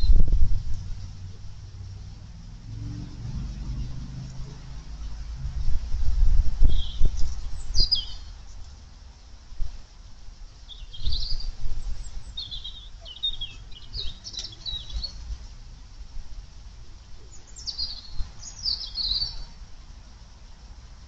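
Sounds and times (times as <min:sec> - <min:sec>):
low rumble: 0:00.0 - 0:08.0
songbird singing warbled phrases: 0:06.6 - 0:08.4, 0:10.6 - 0:15.3, 0:17.2 - 0:19.6.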